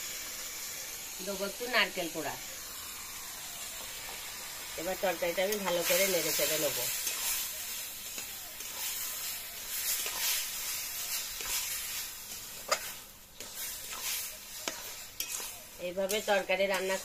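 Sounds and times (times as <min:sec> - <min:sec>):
curry sizzling in metal pan: 0:00.0 - 0:17.0
metal spatula scraping pan: 0:05.6 - 0:07.5, 0:08.6 - 0:17.0.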